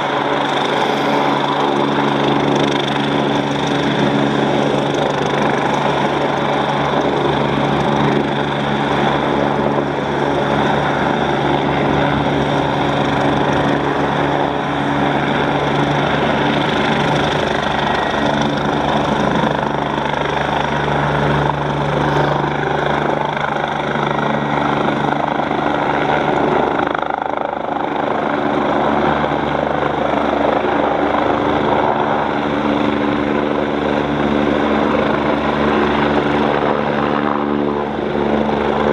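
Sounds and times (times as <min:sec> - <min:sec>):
helicopter rotors running: 0:00.0 - 0:38.9
turbine whine: 0:00.0 - 0:38.9.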